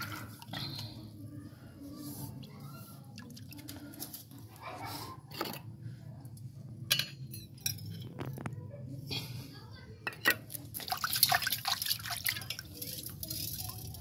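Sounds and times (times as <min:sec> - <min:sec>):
water sloshing in basin: 0:10.5 - 0:13.8.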